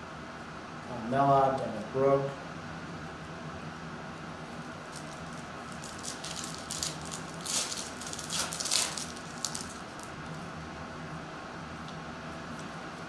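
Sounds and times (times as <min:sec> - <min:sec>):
foil wrapper crinkling as torn: 0:04.8 - 0:10.3.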